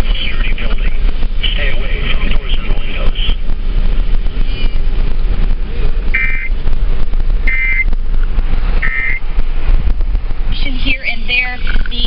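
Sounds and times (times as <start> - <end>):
road and wind noise in moving car: 0.0 - 12.0
short electronic beeps: 4.4 - 4.8, 6.2 - 6.6, 7.4 - 7.9, 8.8 - 9.2.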